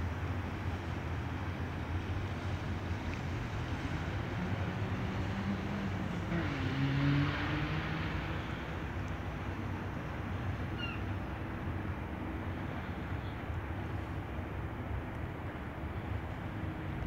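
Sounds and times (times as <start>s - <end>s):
wind and water noise: 0.0s - 17.0s
motorboat engine humming: 8.4s - 17.0s.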